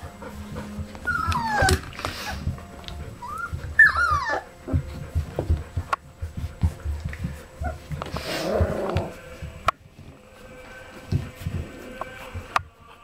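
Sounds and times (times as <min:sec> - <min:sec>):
puppies whining: 0:00.0 - 0:09.4
puppies scuffling and bumping: 0:00.0 - 0:13.0.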